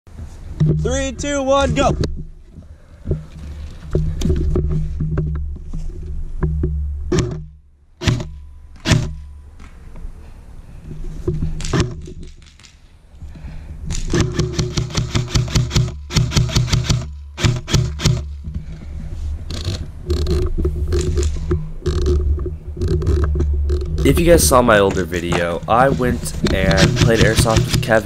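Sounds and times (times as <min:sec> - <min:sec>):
handling noise: 0:00.1 - 0:28.0
airsoft rifle shots: 0:08.0 - 0:09.2, 0:13.9 - 0:18.3, 0:24.0 - 0:28.0
wind rumble: 0:18.3 - 0:28.0.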